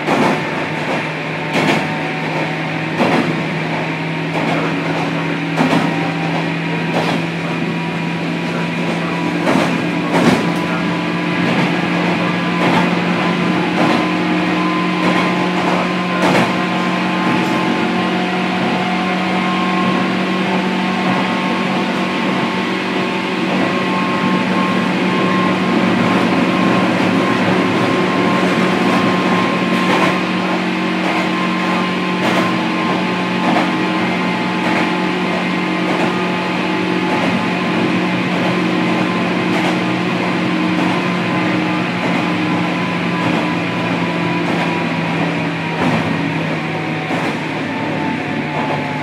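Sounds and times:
train motor and gear hum: 0.0s - 49.0s.

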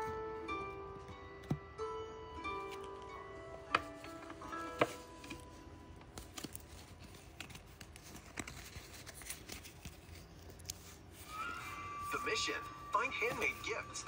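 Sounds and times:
foil wrappers rustling: 3.9s - 14.0s.

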